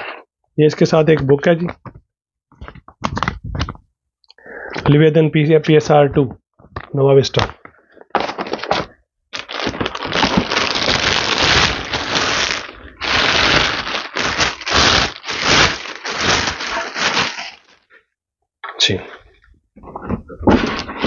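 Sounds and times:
plastic wrapping crinkling: 0:08.0 - 0:17.9.

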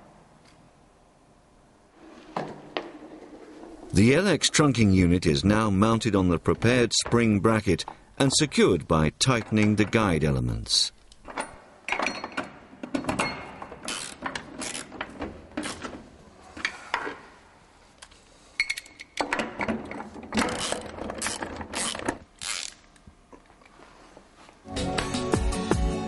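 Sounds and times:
ratchet wrench clicking: 0:13.9 - 0:14.9, 0:20.6 - 0:22.8.

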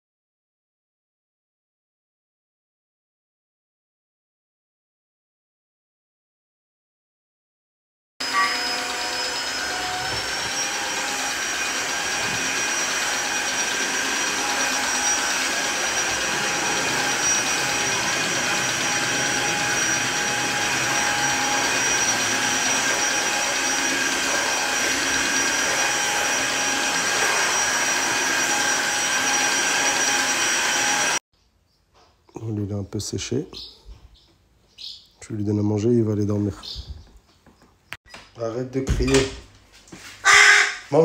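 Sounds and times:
stick vacuum motor whine: 0:08.2 - 0:31.2.

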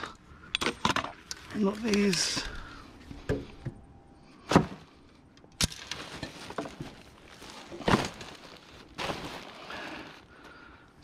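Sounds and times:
rubbish knocks and crinkles: 0:05.6 - 0:10.3
plastic garbage bag rustling: 0:05.6 - 0:10.9.

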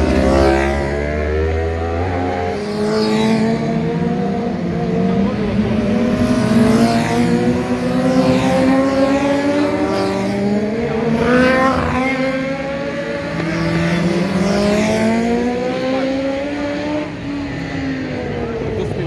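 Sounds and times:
racing motorcycles passing: 0:00.0 - 0:19.0.

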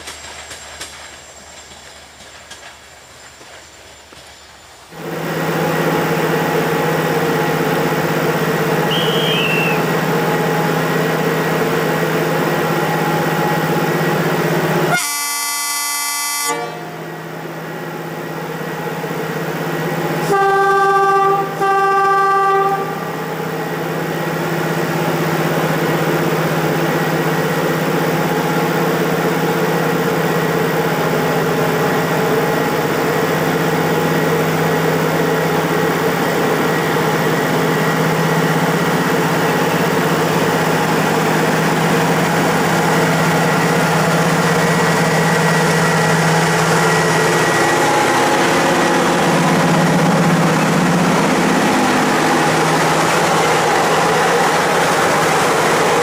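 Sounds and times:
locomotive humming: 0:00.0 - 0:56.0
lower horn toots: 0:14.9 - 0:17.1, 0:20.2 - 0:23.2
train horn blast: 0:14.9 - 0:17.1, 0:20.2 - 0:23.2.

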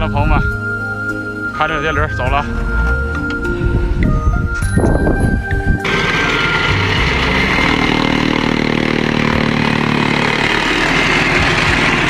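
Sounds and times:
chaff cutter chopping grass: 0:05.8 - 0:12.0.

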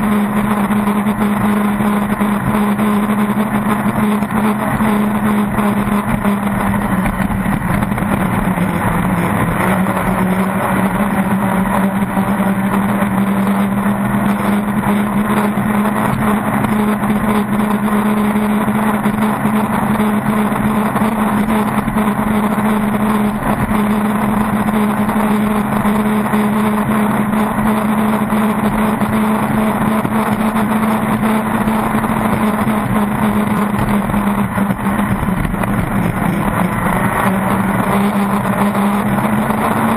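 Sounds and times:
boat racing engine running: 0:00.0 - 0:39.9.

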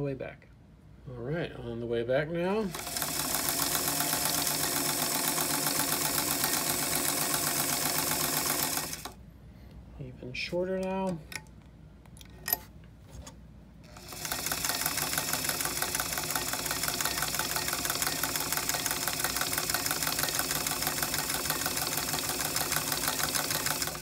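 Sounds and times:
sewing machine stitching: 0:02.6 - 0:09.2, 0:13.9 - 0:24.0.

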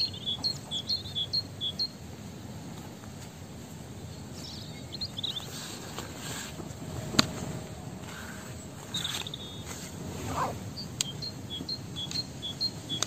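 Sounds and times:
bird trill: 0:00.0 - 0:02.0, 0:08.2 - 0:13.0
low outdoor rumble: 0:00.0 - 0:13.0.

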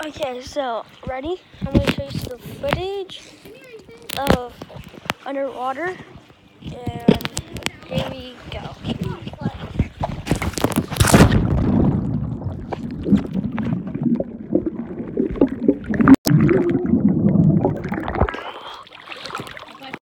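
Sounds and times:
muffled underwater gurgling: 0:11.8 - 0:19.8.

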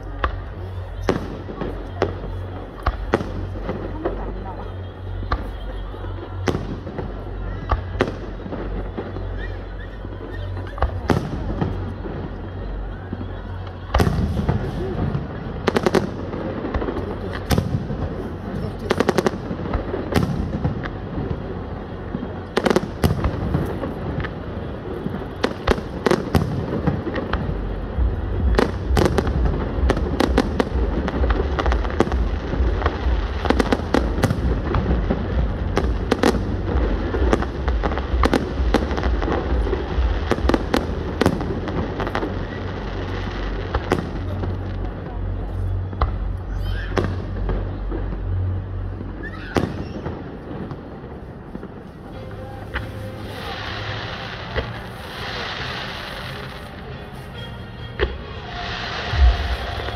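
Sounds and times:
fireworks bursting and crackling: 0:00.0 - 0:59.9
deep low rumble: 0:25.9 - 0:49.2, 0:58.1 - 0:59.9.

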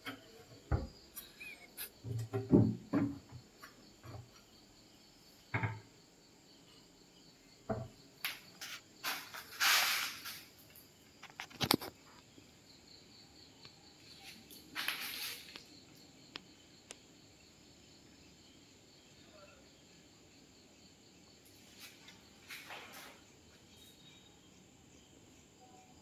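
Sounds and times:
cabinet door knocks and thuds: 0:02.1 - 0:03.4, 0:05.5 - 0:05.9, 0:07.7 - 0:07.9.

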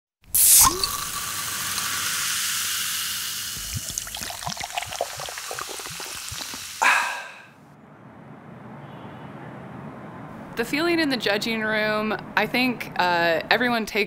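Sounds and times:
beer fizzing in a glass: 0:00.3 - 0:07.2
bubbly glugs and pops: 0:00.4 - 0:01.4, 0:03.5 - 0:06.8.

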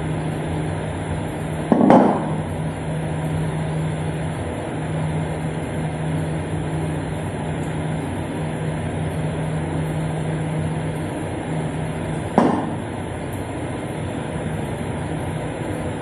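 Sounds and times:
mechanical hum: 0:00.0 - 0:16.0.

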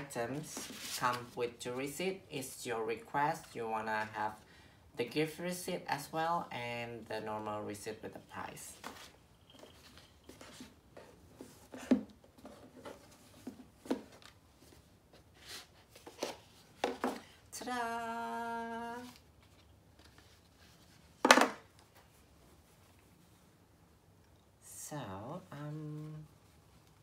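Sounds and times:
paper and box rustling: 0:00.3 - 0:01.4, 0:08.6 - 0:17.2.

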